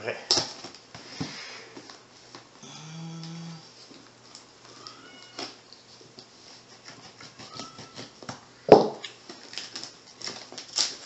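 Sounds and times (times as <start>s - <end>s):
knife cutting packing tape: 6.7s - 8.4s, 9.0s - 11.0s.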